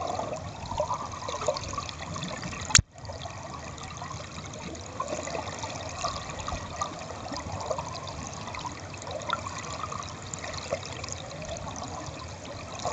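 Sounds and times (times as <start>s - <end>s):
stream water flowing and gurgling: 0.0s - 12.9s.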